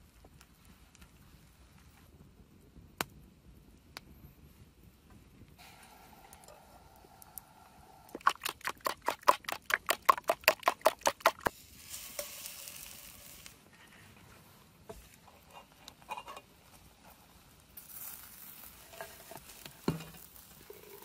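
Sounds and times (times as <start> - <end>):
short soft hiss: 5.6 - 8.2, 11.5 - 13.8.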